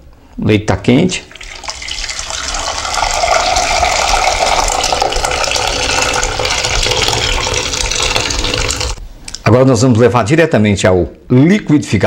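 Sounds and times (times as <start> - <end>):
liquid pouring into a sieve: 1.3 - 9.0.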